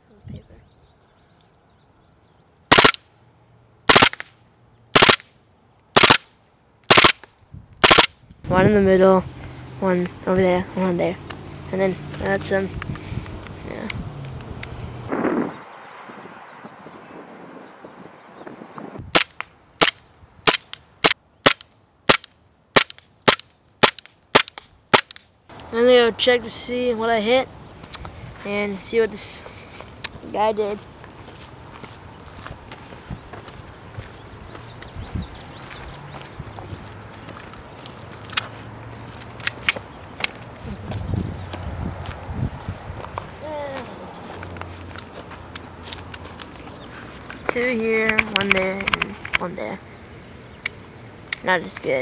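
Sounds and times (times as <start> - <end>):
airsoft pistol firing bursts: 2.7 - 3.0, 3.9 - 4.3, 5.0 - 5.2, 6.0 - 6.3, 6.9 - 7.2, 7.8 - 8.1.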